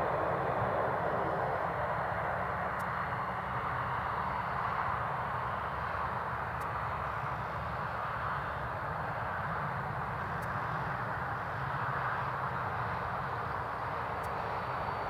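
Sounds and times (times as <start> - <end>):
low hum: 0.0 - 7.6
jet engine roar: 0.0 - 15.0.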